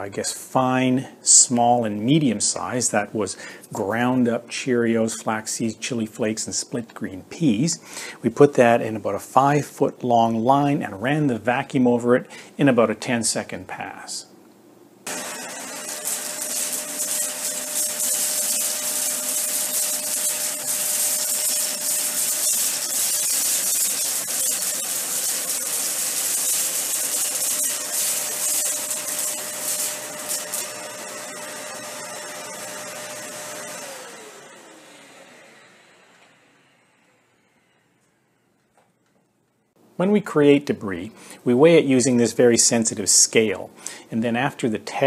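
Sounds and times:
vacuum motor winding down: 0:15.1 - 0:38.4
upright vacuum whining: 0:15.1 - 0:39.0.

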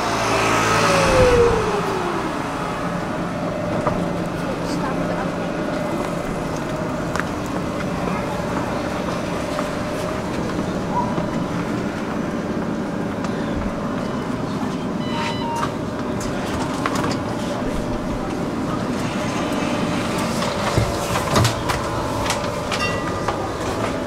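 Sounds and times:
tram electrical hum: 0:00.0 - 0:24.0
short electronic beep: 0:15.0 - 0:15.7.

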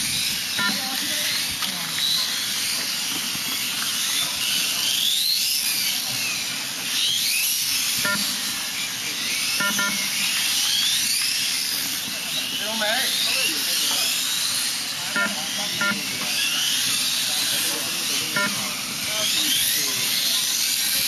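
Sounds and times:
electric toy motorcycles whining: 0:00.0 - 0:21.0
short beeps: 0:00.6 - 0:00.8, 0:08.1 - 0:08.4, 0:09.6 - 0:10.1, 0:15.2 - 0:16.1, 0:18.4 - 0:18.7.

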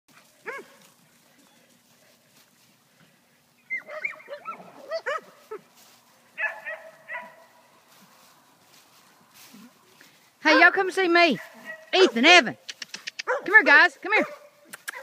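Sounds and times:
dogs barking and yipping: 0:00.1 - 0:01.8, 0:03.6 - 0:07.6, 0:13.2 - 0:13.6.

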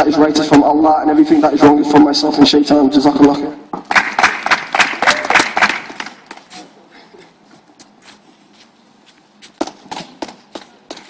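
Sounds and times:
small crowd applauding: 0:03.8 - 0:06.5.

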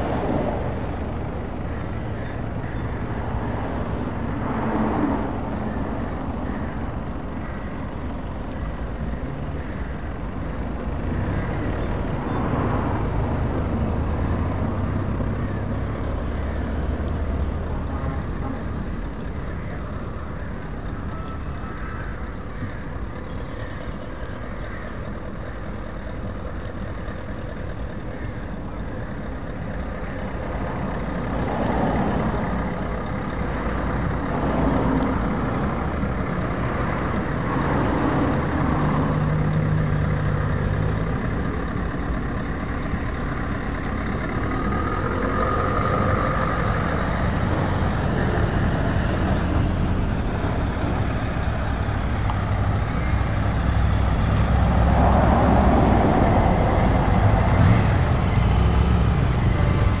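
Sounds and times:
diesel truck engine driving past: 0:22.0 - 1:00.0.

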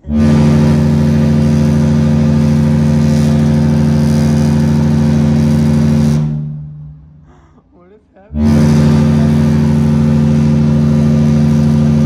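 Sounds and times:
ship's horn deep blast: 0:00.0 - 0:07.2, 0:08.3 - 0:12.0.

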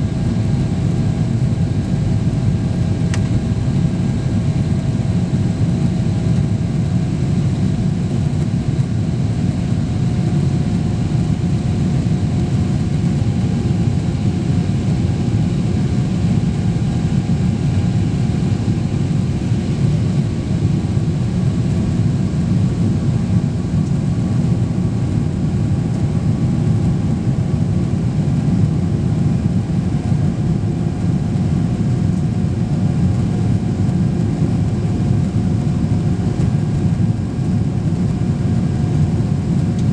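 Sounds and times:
airliner engine cabin rumble: 0:00.0 - 0:39.9.

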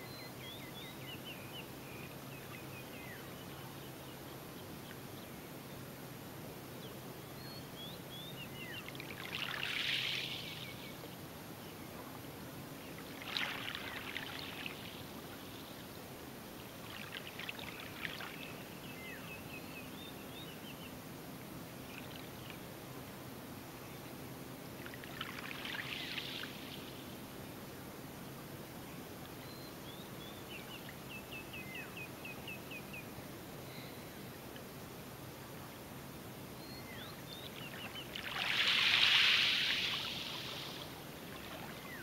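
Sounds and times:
birds chirping faintly: 0:00.0 - 0:42.0
faint steady hiss: 0:00.0 - 0:42.0
water lapping on shore: 0:37.7 - 0:42.0.

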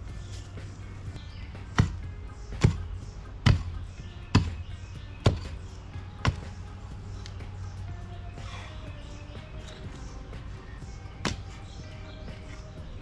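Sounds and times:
digging tool chopping into soil: 0:01.6 - 0:02.0, 0:02.6 - 0:06.6, 0:11.2 - 0:11.6.

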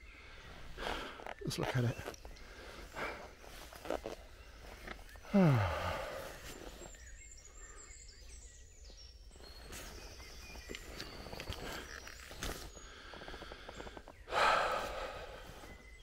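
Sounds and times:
man groaning: 0:05.3 - 0:06.0.

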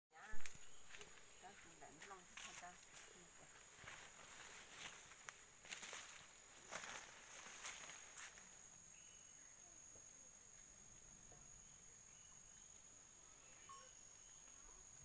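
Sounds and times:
footsteps through undergrowth: 0:00.2 - 0:08.7
high-pitched insect trill: 0:00.2 - 0:15.0.

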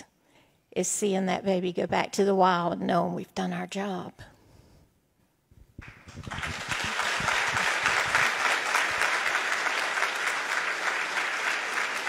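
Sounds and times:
large crowd clapping: 0:05.8 - 0:12.0.

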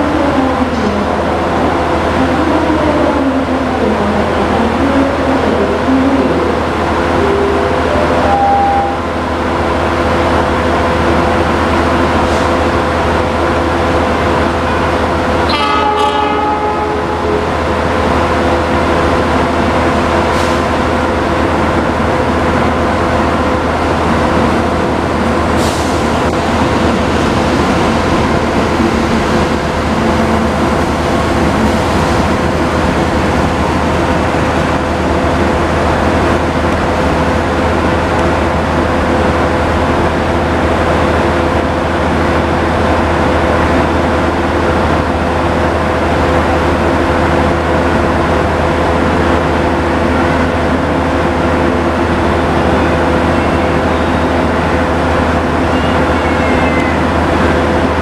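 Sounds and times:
diesel locomotive engine drone: 0:00.0 - 0:58.0
train cars rumbling on rails: 0:00.0 - 0:58.0
train horn: 0:15.5 - 0:17.8.

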